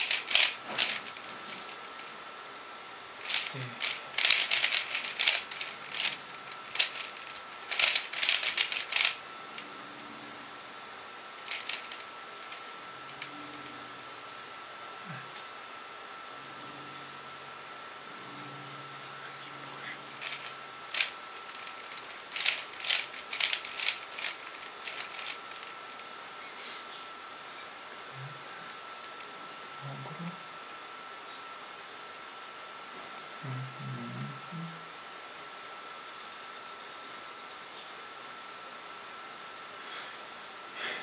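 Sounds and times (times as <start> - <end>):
puzzle cube plastic clicks: 0.0 - 1.2, 3.2 - 9.2, 11.4 - 12.6, 20.2 - 25.7.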